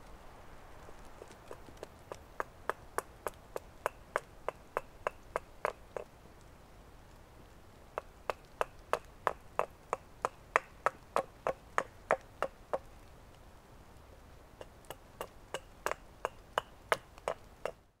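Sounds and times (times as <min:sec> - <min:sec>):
hatchet chopping wood: 0:01.5 - 0:06.1, 0:08.0 - 0:12.9, 0:14.6 - 0:17.8.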